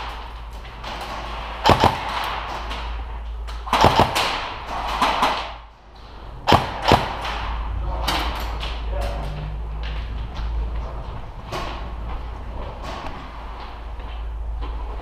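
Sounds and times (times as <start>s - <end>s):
airsoft gunfire cracks: 1.6s - 2.4s, 3.7s - 5.6s, 6.5s - 7.4s.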